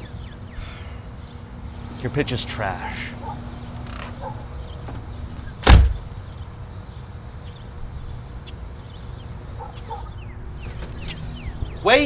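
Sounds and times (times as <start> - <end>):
front door slamming: 3.8 - 6.1, 10.6 - 11.6.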